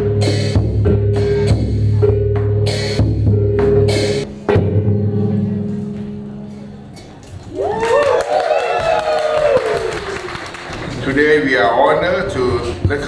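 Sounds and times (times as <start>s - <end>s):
music with drum beat and drone: 0.0s - 5.0s.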